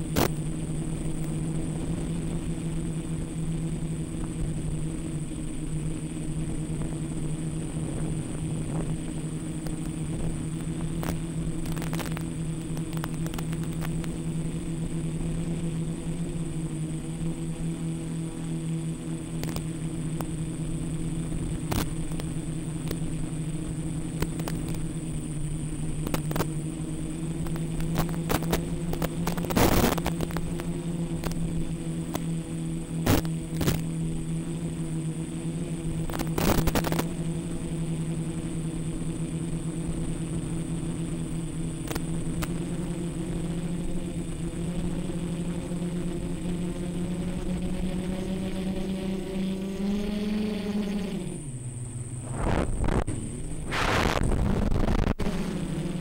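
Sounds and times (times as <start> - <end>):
drone propellers buzzing: 0.0 - 56.0
clicks and crackles: 9.6 - 14.2, 19.4 - 20.3, 21.6 - 23.1, 24.1 - 24.9, 26.0 - 26.6, 27.4 - 31.4, 36.1 - 37.1, 41.8 - 42.6.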